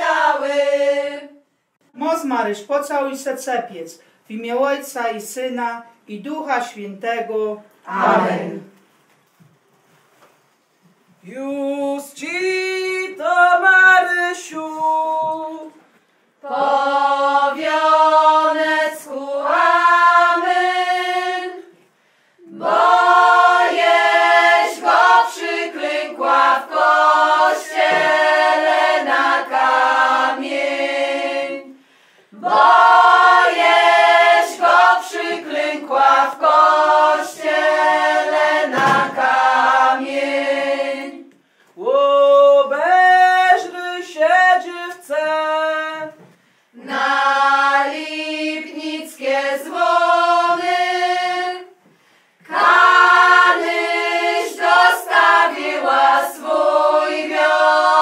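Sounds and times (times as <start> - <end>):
women singing unaccompanied: 0.0 - 1.4, 7.9 - 8.7, 22.4 - 31.8, 46.8 - 51.8, 52.4 - 58.0.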